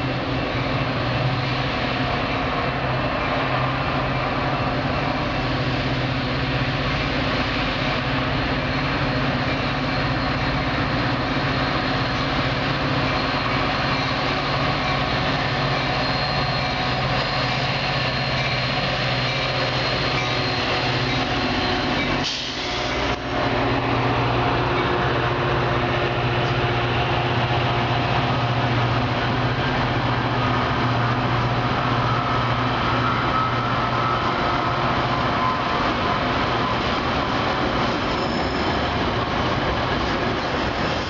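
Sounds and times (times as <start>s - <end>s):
train wheels rumbling on rails: 0.0s - 41.0s
thin high squeal: 12.9s - 23.2s, 38.0s - 38.8s.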